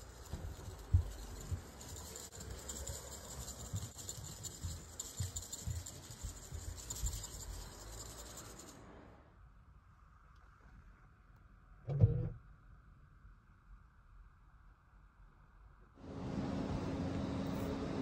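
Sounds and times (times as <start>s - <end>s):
scratchy rubbing: 0.0s - 8.8s.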